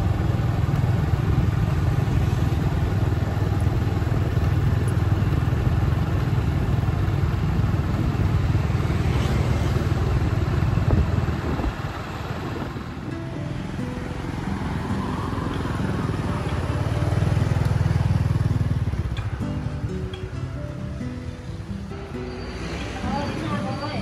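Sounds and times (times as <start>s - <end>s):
motorbike engine rumble: 0.0s - 24.0s
road and wind noise: 0.0s - 24.0s.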